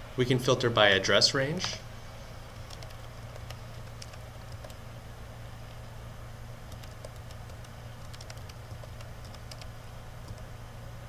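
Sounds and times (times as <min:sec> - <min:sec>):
steady low hum: 0:00.0 - 0:11.0
computer keyboard typing: 0:02.6 - 0:04.8, 0:06.7 - 0:10.5.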